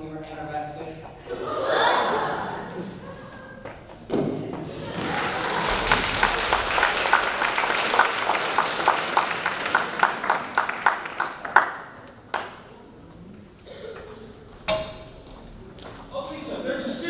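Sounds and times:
audience applauding: 4.7s - 12.6s.

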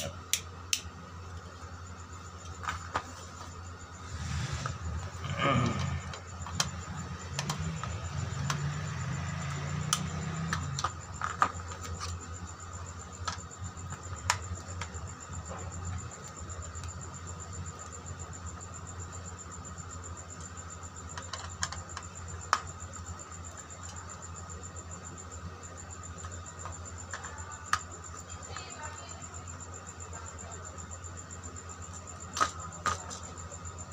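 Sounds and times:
steady background hum: 0.0s - 33.9s.

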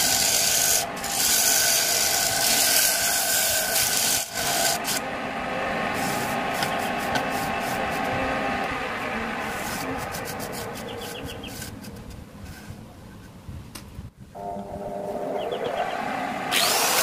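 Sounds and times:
sanding on wood lathe: 0.0s - 5.0s.

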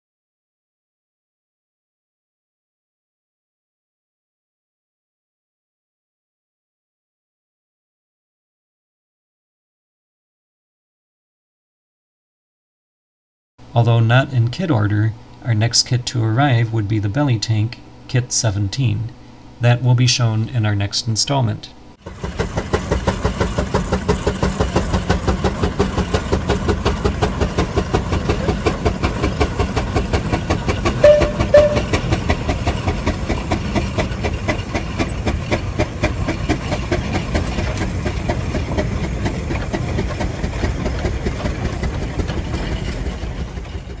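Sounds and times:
steam engine chuffing: 22.0s - 44.0s
brief high notes: 31.0s - 32.2s.

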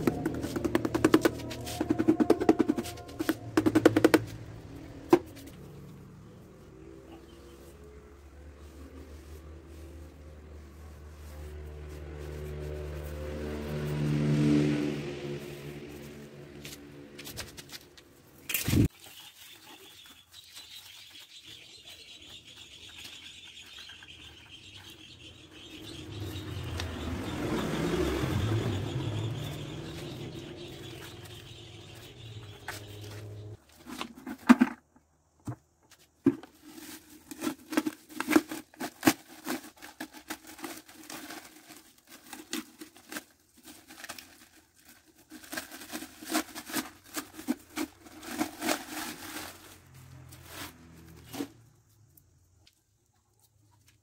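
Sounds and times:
plastic sheet rustling: 36.4s - 51.6s.

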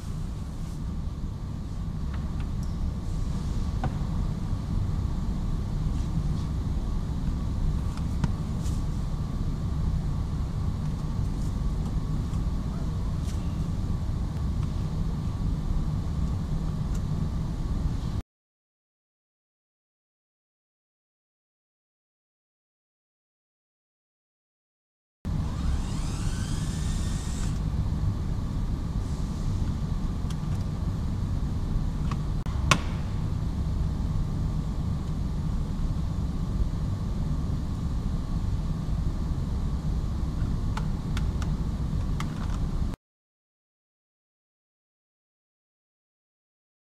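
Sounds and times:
low workshop rumble: 0.0s - 18.2s, 25.3s - 43.0s.

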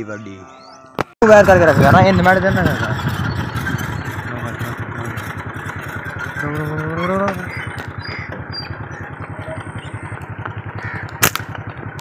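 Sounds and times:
motorcycle engine idling: 1.2s - 12.0s
sharp crack: 11.0s - 12.0s.

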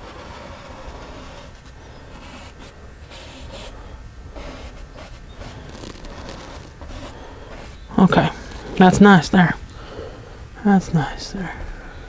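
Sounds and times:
low room hum: 0.0s - 12.0s
brush dabbing on canvas: 4.4s - 9.6s.

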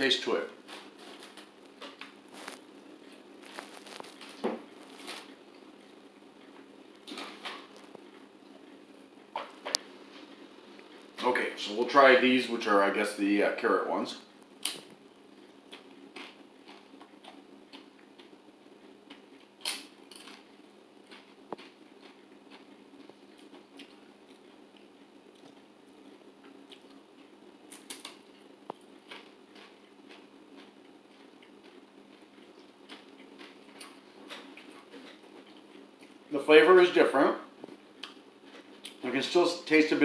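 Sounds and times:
faint room hum: 0.0s - 40.0s
crunching and chewing chip: 0.7s - 8.8s, 14.6s - 36.3s.

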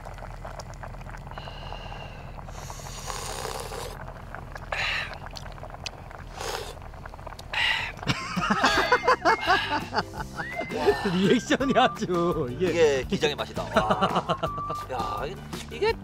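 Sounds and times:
steady low hum: 0.0s - 11.7s
person slurping from a spoon: 1.4s - 8.1s.

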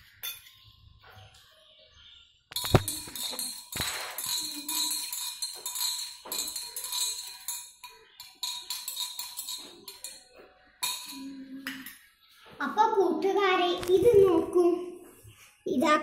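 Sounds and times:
spoon knocking on glass: 2.5s - 11.9s
spoon clinking against glass: 2.5s - 12.1s.

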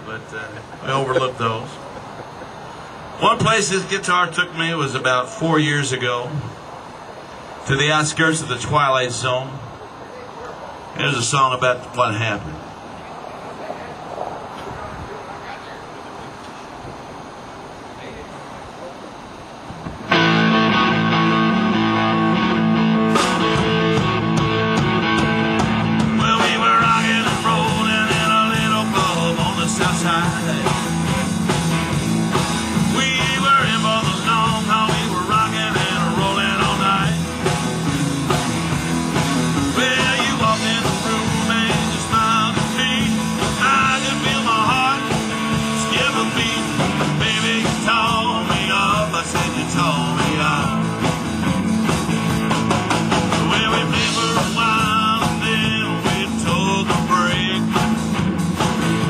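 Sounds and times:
electric guitars: 19.7s - 59.0s
drum kit: 20.1s - 59.0s.

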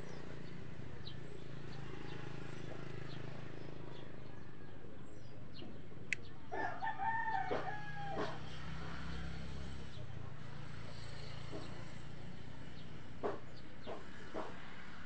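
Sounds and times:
rooster crowing: 6.5s - 8.4s.

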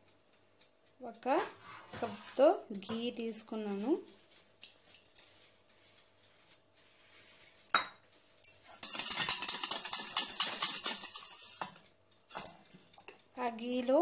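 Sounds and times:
whisk rattling and scraping bowl: 3.6s - 13.2s
whisk clinking on steel bowl: 7.2s - 13.2s.

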